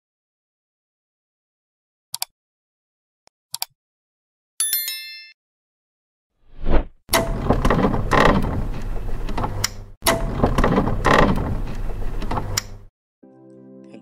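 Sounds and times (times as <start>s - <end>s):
short whoosh: 6.5s - 7.0s
mechanical clatter with sharp clicks: 7.1s - 12.9s.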